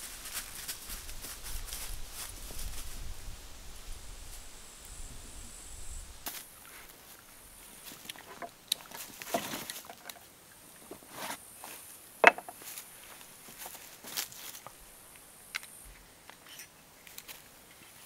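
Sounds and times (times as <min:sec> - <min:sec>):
rummaging in canvas backpack: 0:07.8 - 0:10.2.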